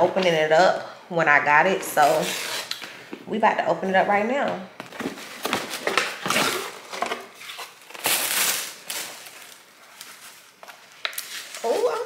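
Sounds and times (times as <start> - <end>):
package wrapping tearing and crinkling: 5.0 - 12.0.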